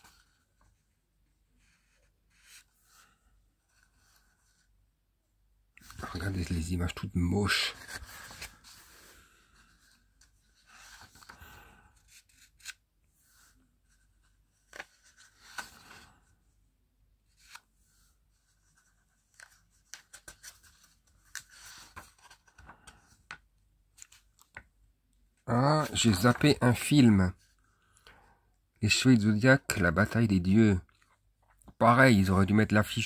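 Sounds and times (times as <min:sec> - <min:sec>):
book pages turning: 0:05.8 - 0:16.2, 0:17.3 - 0:24.7.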